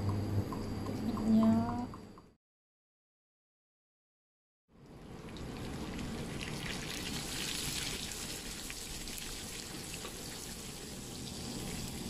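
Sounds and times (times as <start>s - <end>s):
fish sizzling in hot oil: 5.3s - 12.0s.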